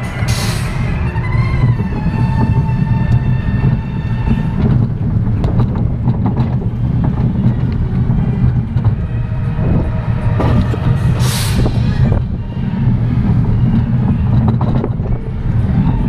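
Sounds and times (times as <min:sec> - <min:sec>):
roller coaster wheels rumbling: 0:00.0 - 0:16.0
clacks and rattles: 0:01.4 - 0:16.0
loud hiss: 0:11.2 - 0:12.0.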